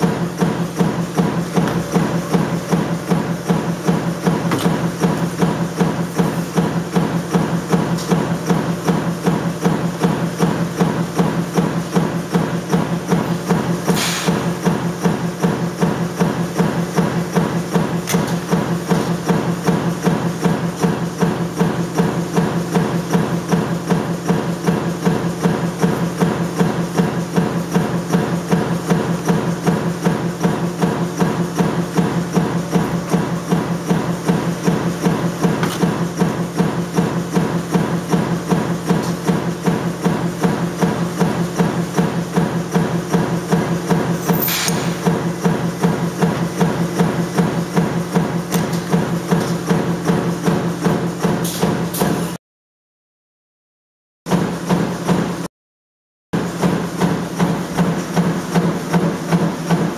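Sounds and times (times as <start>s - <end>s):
machinery rapid knocking: 0.0s - 52.0s, 56.4s - 59.9s
short hiss: 14.0s - 14.4s.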